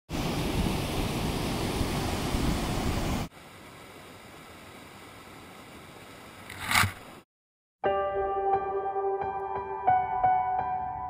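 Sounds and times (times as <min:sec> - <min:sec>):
quiet rush of water: 0:00.1 - 0:07.2.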